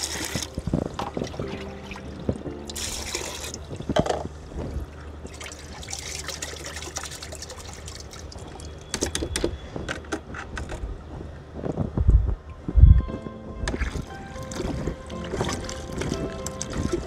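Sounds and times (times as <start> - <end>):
water trickling into bucket: 0.0 - 9.5, 13.6 - 17.0.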